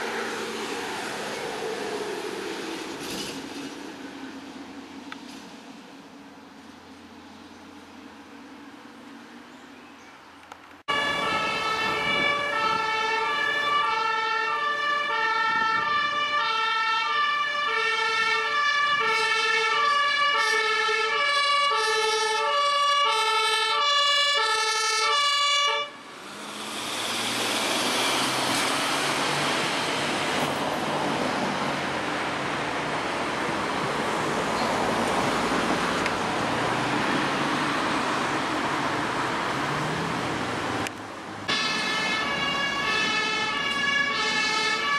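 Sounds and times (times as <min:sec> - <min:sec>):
road traffic passing: 0:00.0 - 0:44.9
ambulance two-tone siren: 0:10.9 - 0:26.1, 0:41.5 - 0:44.9.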